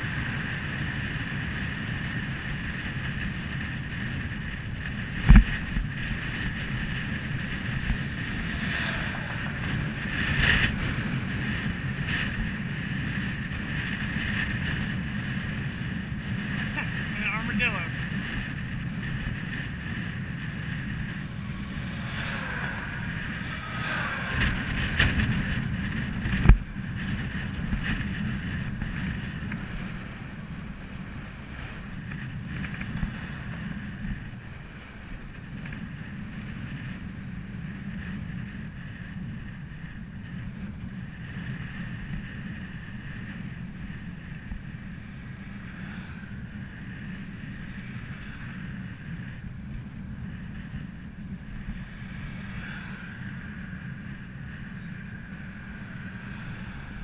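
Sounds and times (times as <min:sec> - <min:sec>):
wind rushing over microphone: 0:00.0 - 0:57.0
falling whine: 0:05.3 - 0:14.7, 0:17.6 - 0:35.1, 0:42.4 - 0:57.0.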